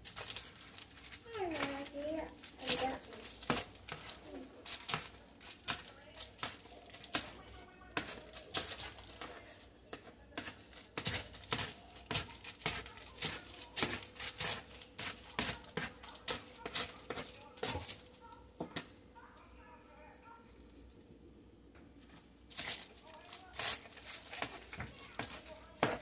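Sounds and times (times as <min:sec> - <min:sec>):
kitchen clicks and taps: 0:02.7 - 0:18.9, 0:22.6 - 0:26.0.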